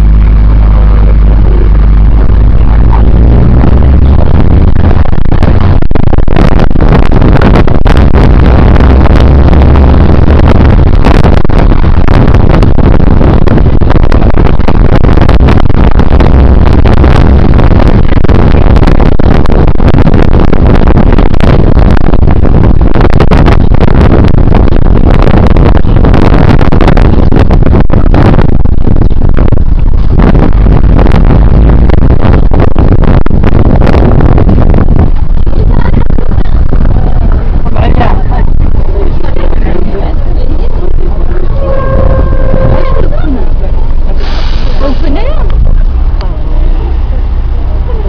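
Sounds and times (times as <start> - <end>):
crackles and knocks: 0.0 - 44.3
vehicle driving on rough road: 0.0 - 48.0.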